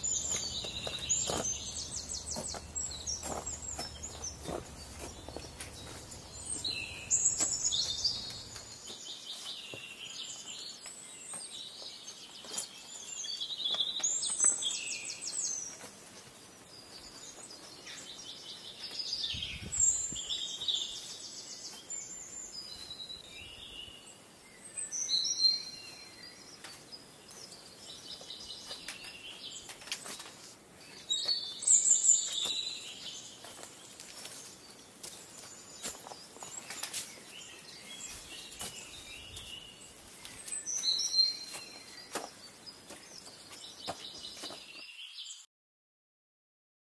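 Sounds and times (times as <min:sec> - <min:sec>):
songbird trilling: 0:00.0 - 0:08.7
faint footsteps on trail: 0:00.0 - 0:23.8, 0:24.9 - 0:45.3.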